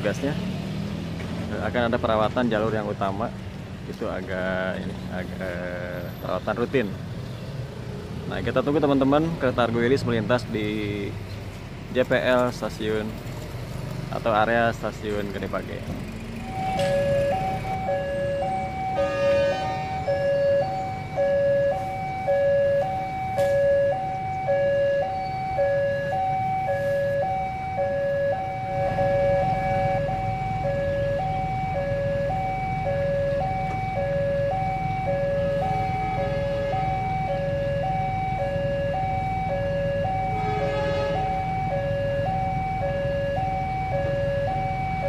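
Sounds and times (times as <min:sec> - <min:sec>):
level crossing two-tone alarm: 0:16.4 - 0:45.0.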